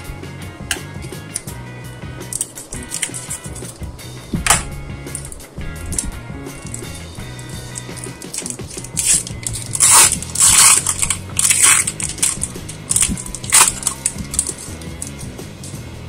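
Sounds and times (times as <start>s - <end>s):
quiet background music: 0.0s - 16.0s
foil wrapper crinkling and tearing: 7.7s - 15.1s.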